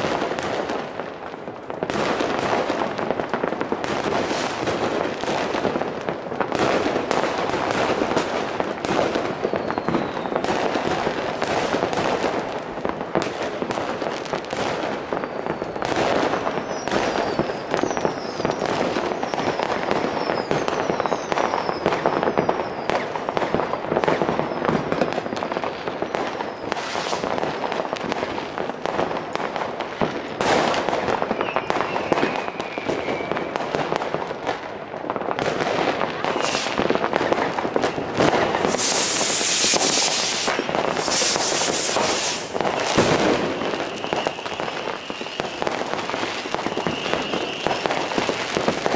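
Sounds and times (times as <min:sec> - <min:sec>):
fireworks and firecrackers crackling: 0:00.0 - 0:48.9
falling firework whistles: 0:06.6 - 0:12.2, 0:14.5 - 0:28.3, 0:30.4 - 0:34.1, 0:35.3 - 0:48.9.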